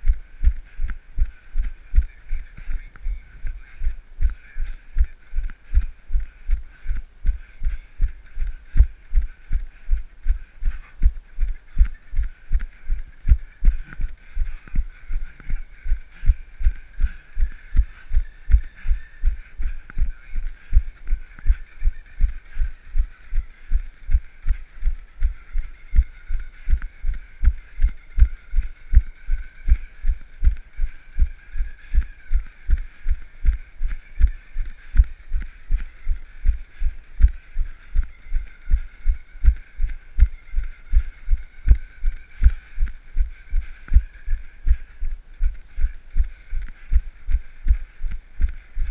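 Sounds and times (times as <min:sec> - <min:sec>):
faint steady whine: 0:00.0 - 0:48.9.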